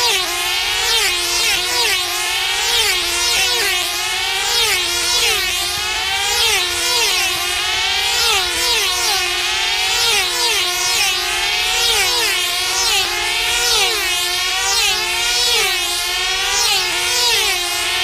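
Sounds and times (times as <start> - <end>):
model aircraft engines screaming: 0.0 - 18.0.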